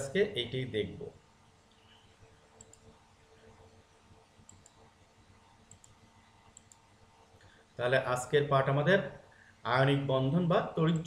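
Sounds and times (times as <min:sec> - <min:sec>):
computer mouse clicks: 0:02.5 - 0:03.0, 0:04.4 - 0:05.0, 0:05.6 - 0:07.6.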